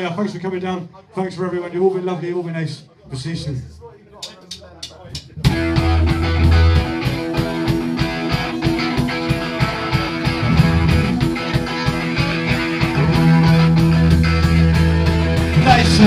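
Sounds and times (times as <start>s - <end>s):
rock band playing: 5.4s - 16.0s.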